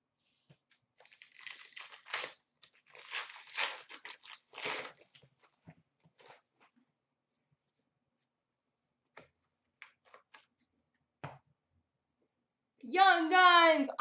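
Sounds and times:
plastic wrapper tearing and crinkling: 0:01.0 - 0:05.2.

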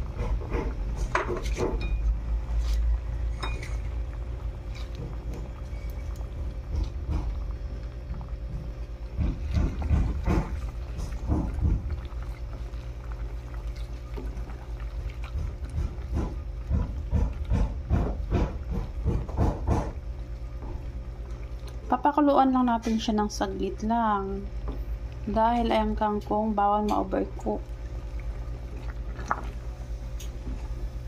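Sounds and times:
steady low hum: 0:00.0 - 0:31.0
liquid sloshing: 0:02.4 - 0:22.0, 0:27.1 - 0:31.0.

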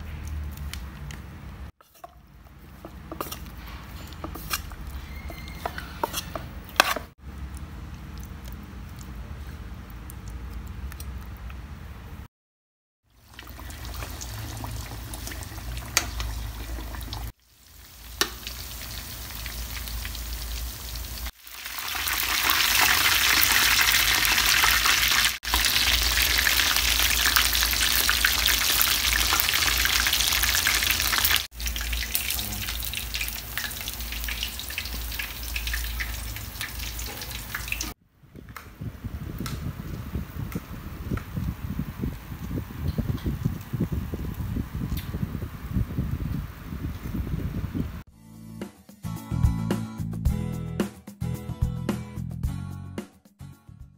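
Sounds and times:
food deep-frying in oil: 0:13.0 - 0:38.0.

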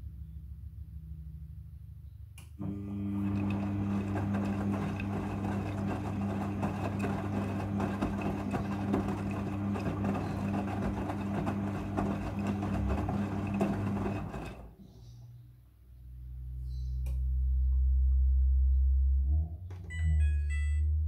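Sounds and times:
washing machine motor hum: 0:02.6 - 0:14.8.

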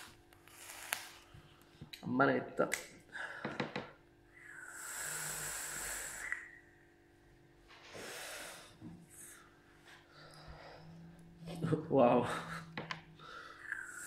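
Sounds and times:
hissing draw through e-cigarette: 0:00.0 - 0:01.3, 0:04.4 - 0:06.6, 0:07.8 - 0:09.3, 0:13.6 - 0:14.0
breathy exhale: 0:04.3 - 0:06.6, 0:07.8 - 0:11.2, 0:12.5 - 0:14.0.

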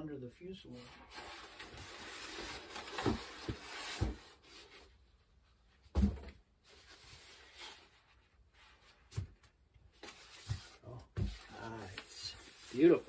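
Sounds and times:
foam rubbing against styrofoam: 0:11.5 - 0:13.0.

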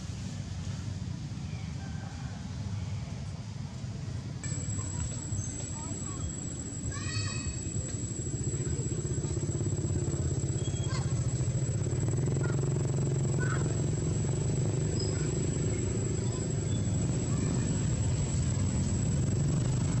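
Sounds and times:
small engine idling: 0:04.4 - 0:20.0
thin high whine: 0:04.4 - 0:20.0.

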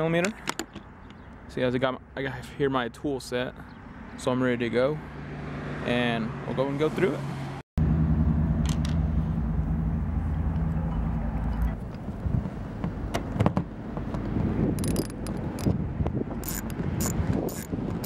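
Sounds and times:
steady low hum: 0:07.8 - 0:12.5
socket ratchet clicking: 0:14.8 - 0:15.8, 0:16.4 - 0:17.8.

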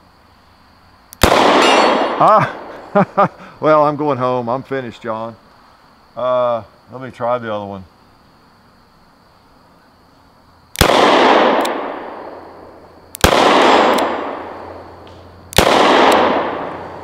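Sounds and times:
revolver shots with echo: 0:01.2 - 0:02.7, 0:10.8 - 0:17.0.

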